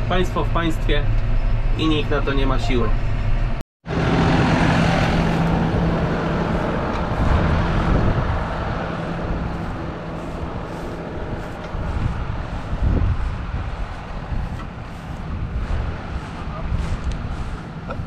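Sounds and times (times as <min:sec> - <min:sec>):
tractor engine humming: 0:03.0 - 0:18.0.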